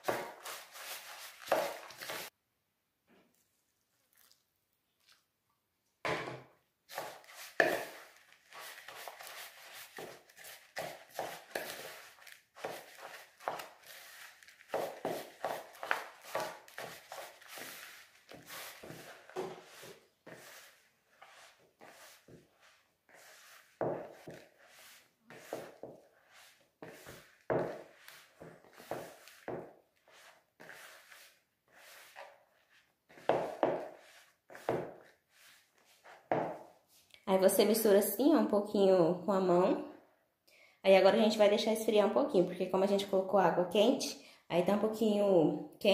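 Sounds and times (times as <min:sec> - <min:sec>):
hands kneading dough: 0:00.0 - 0:02.3, 0:06.9 - 0:36.9.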